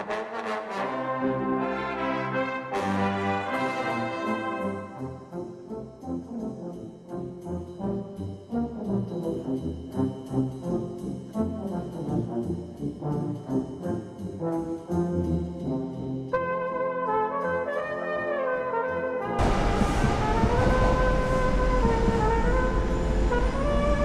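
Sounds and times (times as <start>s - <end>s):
brass band playing: 0.0s - 24.0s.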